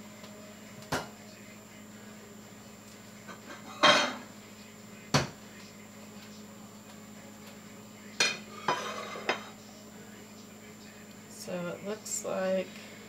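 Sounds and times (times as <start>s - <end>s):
faint steady hum: 0.0s - 13.0s
dishes and utensils clinking: 3.3s - 4.3s, 8.2s - 9.6s.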